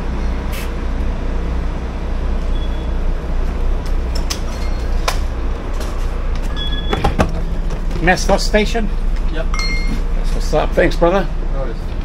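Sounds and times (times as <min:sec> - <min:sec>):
bus engine idling: 0:00.0 - 0:12.0
high beep: 0:02.5 - 0:02.9, 0:06.5 - 0:07.0, 0:09.5 - 0:10.0.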